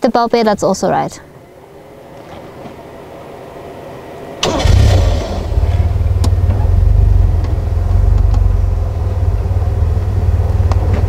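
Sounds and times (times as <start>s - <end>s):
vehicle engine starting and running: 3.9s - 11.0s.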